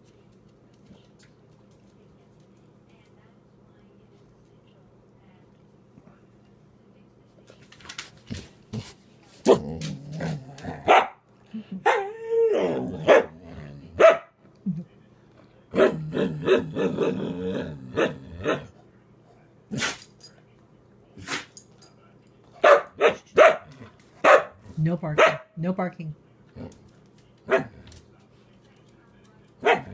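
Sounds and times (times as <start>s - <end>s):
dog barking and grumbling: 9.3s - 11.2s, 11.8s - 14.3s, 15.7s - 18.8s, 26.5s - 27.9s, 29.6s - 29.9s.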